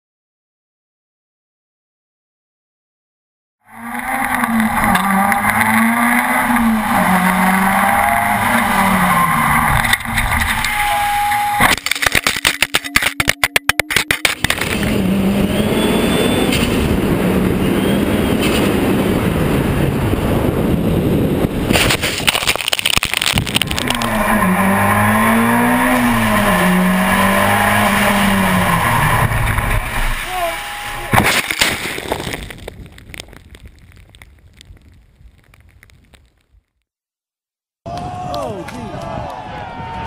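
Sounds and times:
race car engine revving hard: 3.7 - 11.7, 14.5 - 18.0, 23.6 - 31.2
tyre squeal: 3.7 - 11.7, 23.9 - 31.2
car crashing with bangs and crunches: 29.5 - 32.8.

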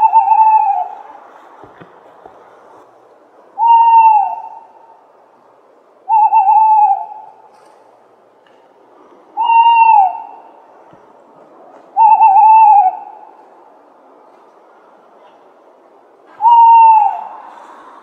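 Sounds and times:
owl hooting: 0.0 - 1.0, 3.6 - 5.0, 6.0 - 7.5, 9.4 - 10.7, 11.9 - 13.4, 16.3 - 18.0
low steady hiss: 0.0 - 18.0.

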